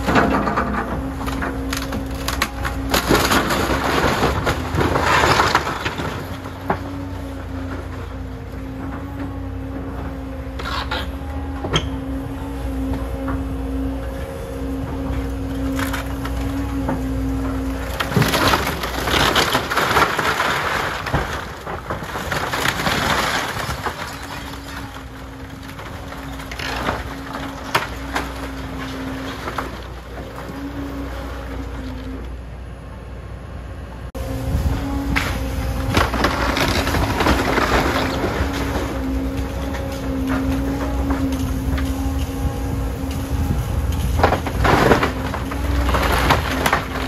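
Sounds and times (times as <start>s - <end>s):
wood cracking: 0.0s - 9.1s, 15.1s - 30.8s, 35.2s - 47.0s
timbers crunching and crashing: 0.0s - 32.2s, 34.4s - 47.0s
excavator engine and hydraulic hum: 0.0s - 47.0s.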